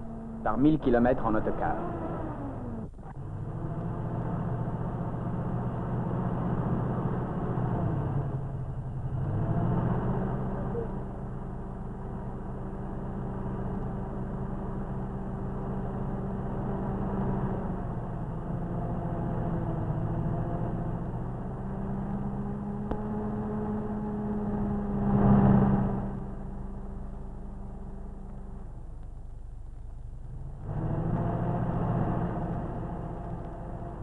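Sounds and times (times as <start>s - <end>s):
coach engine running: 0.0s - 34.0s.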